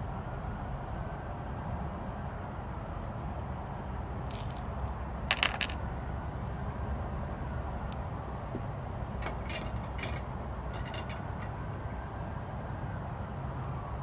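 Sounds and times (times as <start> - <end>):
light glassy clinks: 9.2 - 12.2.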